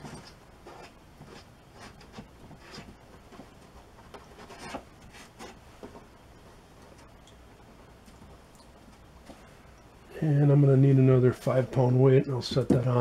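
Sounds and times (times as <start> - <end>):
rag rubbing on wooden tabletop: 0.0 - 3.0.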